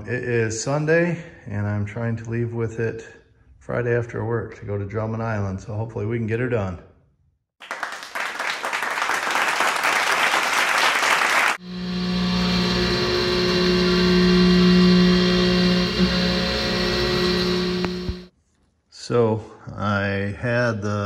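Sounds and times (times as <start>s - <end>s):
milling machine humming: 11.6s - 18.3s.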